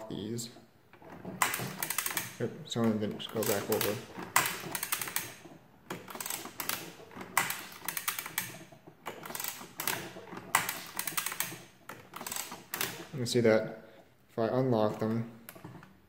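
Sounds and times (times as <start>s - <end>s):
adding machine clattering and ratcheting: 0.0s - 13.5s, 14.6s - 16.0s.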